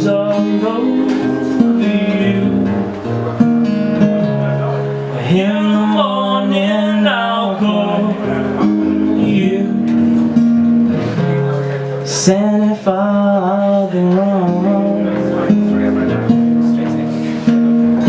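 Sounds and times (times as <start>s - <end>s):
man singing: 0.0s - 3.3s, 5.0s - 10.4s, 12.0s - 17.0s
acoustic guitar strumming: 0.0s - 18.0s.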